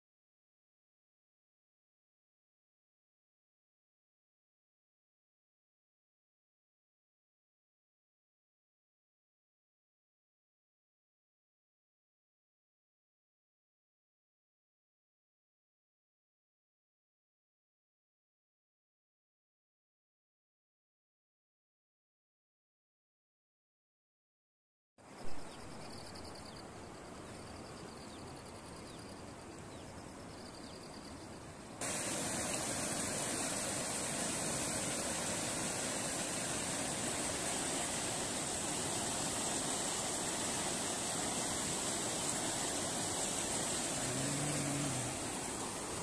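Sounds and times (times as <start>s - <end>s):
whitewater rushing through channel: 31.8s - 46.0s.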